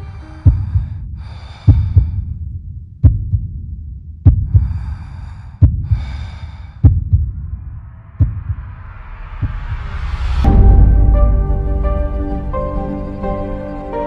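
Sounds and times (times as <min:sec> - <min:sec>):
loud breathing: 0:00.0 - 0:02.4, 0:04.4 - 0:07.5
heartbeat thumps: 0:00.4 - 0:11.4.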